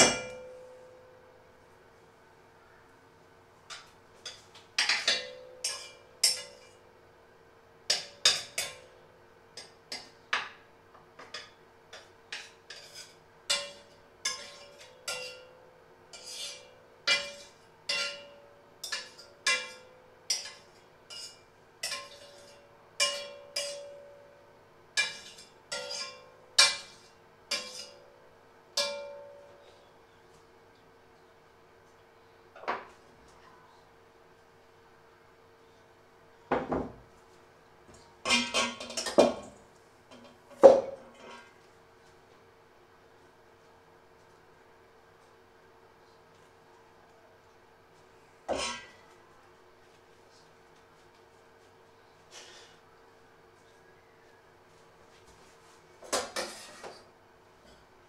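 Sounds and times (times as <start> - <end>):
faint steady hum: 0.0 - 58.0
metal utensil tapping a pan: 4.8 - 6.7, 17.1 - 24.2, 28.8 - 29.4.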